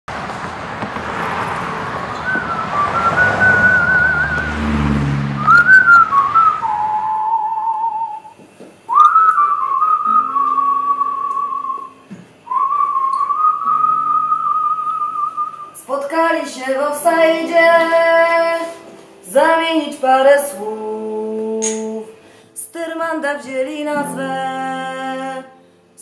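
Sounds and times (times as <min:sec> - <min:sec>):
man whistling through hands: 0:02.2 - 0:04.6, 0:05.4 - 0:15.8
background hiss: 0:05.6 - 0:26.0.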